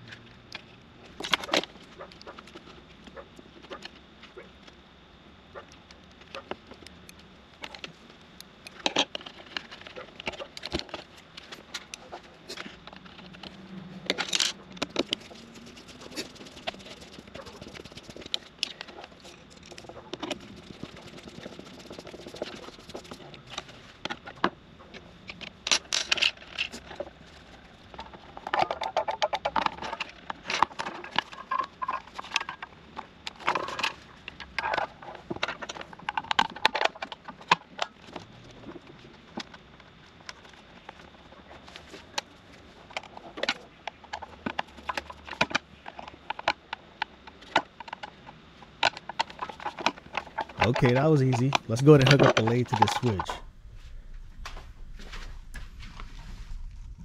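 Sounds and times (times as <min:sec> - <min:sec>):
plastic parts clicking and scraping: 0:05.8 - 0:39.6, 0:40.2 - 0:57.0
rattling clicks of housing: 0:48.8 - 0:53.5.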